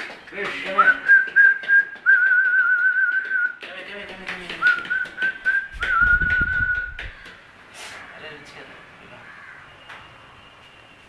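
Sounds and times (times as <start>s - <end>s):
person whistling: 0.7s - 3.6s, 4.6s - 7.0s.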